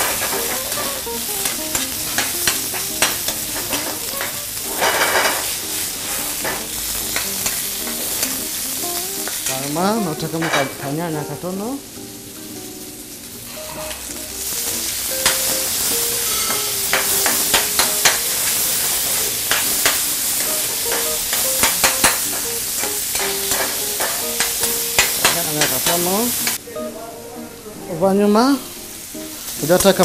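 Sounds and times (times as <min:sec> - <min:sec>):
chicken sizzling in a pan: 0:00.0 - 0:26.6, 0:28.4 - 0:30.0
metal spatula scraping a pan: 0:01.7 - 0:08.3, 0:13.5 - 0:24.3.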